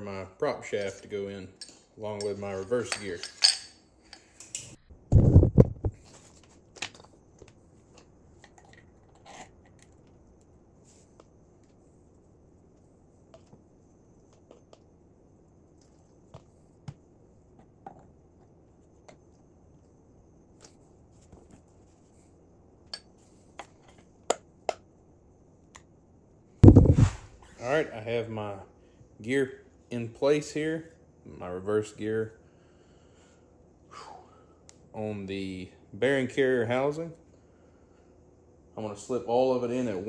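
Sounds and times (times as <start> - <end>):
heavy low thump: 26.6 - 27.3.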